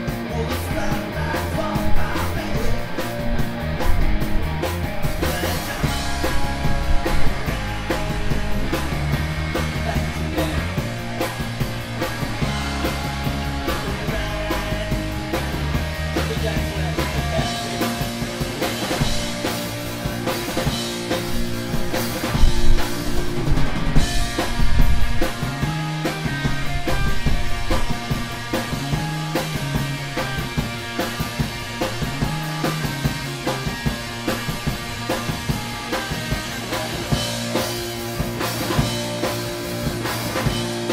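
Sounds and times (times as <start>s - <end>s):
bass line: 0.0s - 40.9s
live rock band playing: 0.0s - 40.9s.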